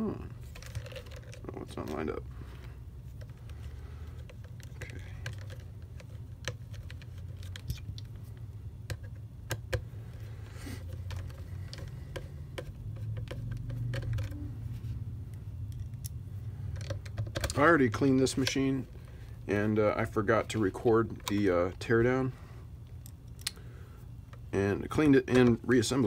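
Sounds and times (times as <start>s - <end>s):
low steady hum: 0.0s - 26.0s
plastic parts clicking and tapping: 0.4s - 8.2s, 8.8s - 14.5s, 15.3s - 19.1s, 19.9s - 21.9s.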